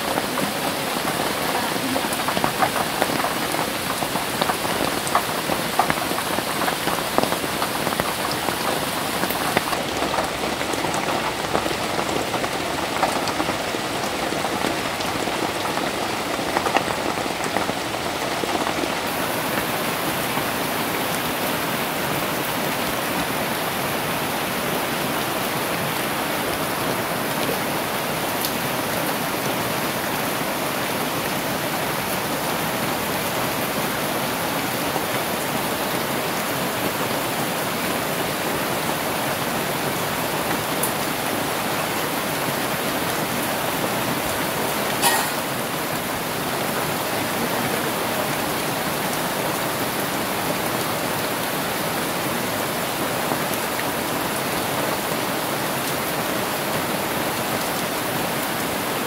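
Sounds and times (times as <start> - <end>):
close raindrops ticking: 0.0 - 31.4
heavy rain on leaves: 0.0 - 59.0.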